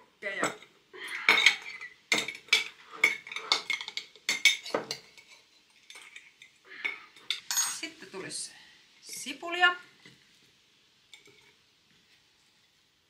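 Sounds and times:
utensil clinking on glass jars: 0.4 - 7.9.

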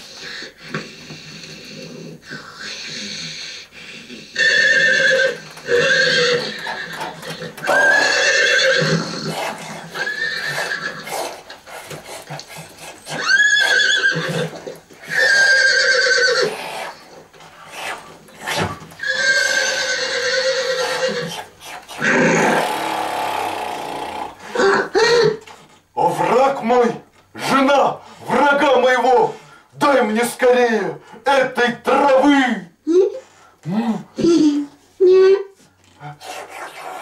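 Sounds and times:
horse whinnying: 4.4 - 11.4, 13.0 - 17.1, 17.8 - 25.4.

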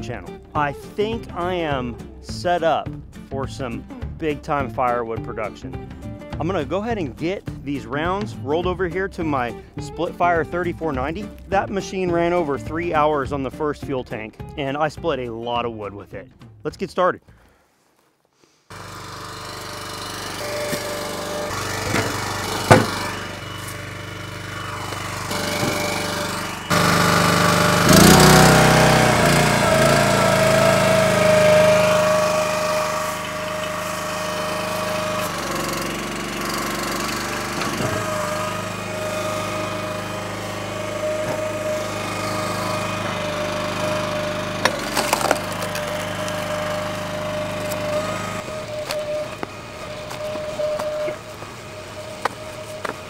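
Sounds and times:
gas engine running with whine: 18.7 - 53.0
sharp knocks: 21.8 - 23.1.

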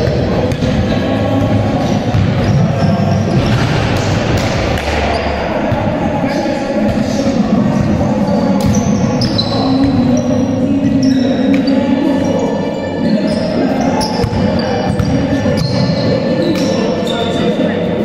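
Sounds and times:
basketball dribbling in a hall: 0.0 - 6.2, 13.2 - 17.4
shoes squeaking on floor: 8.2 - 17.7.

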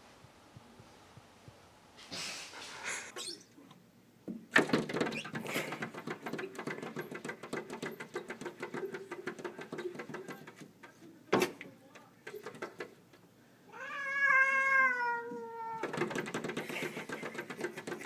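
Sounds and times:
cat growling: 13.7 - 15.8.

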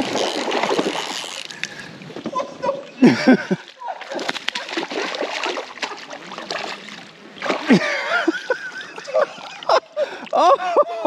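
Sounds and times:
fish splashing at water surface: 4.0 - 8.0.

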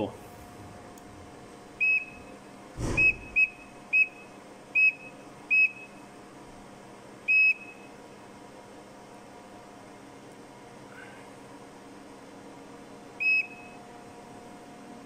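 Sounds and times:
short high electronic beeps: 3.0 - 3.7.

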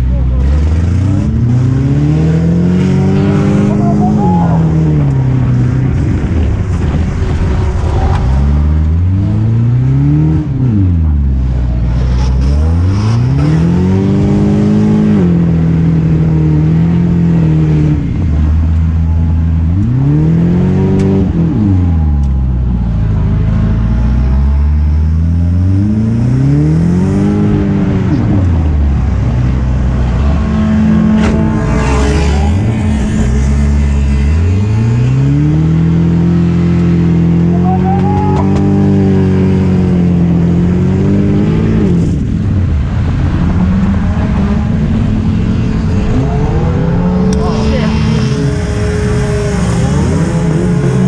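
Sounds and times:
race car engine revving: 0.0 - 51.0.

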